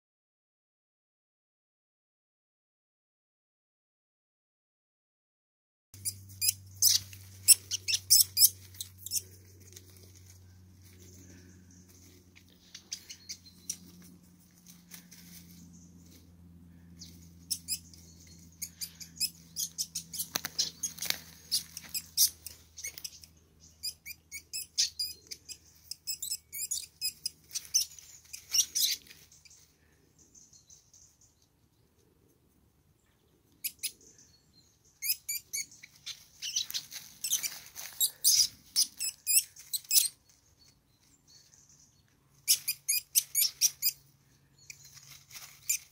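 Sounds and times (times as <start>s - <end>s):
weasels squealing and chirping: 6.0s - 14.0s, 17.0s - 29.6s, 33.6s - 34.3s, 34.9s - 40.2s, 42.4s - 45.9s.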